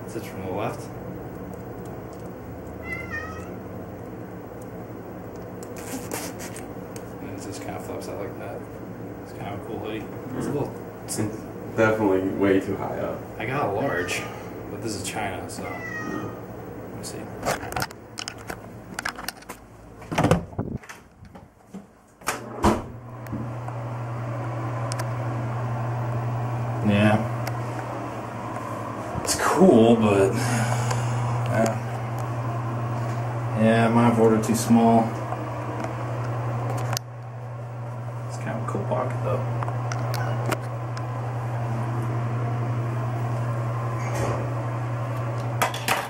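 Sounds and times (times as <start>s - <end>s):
low room hum: 0.0s - 46.0s
kitten meowing: 2.8s - 3.6s, 15.6s - 16.4s, 40.0s - 40.5s.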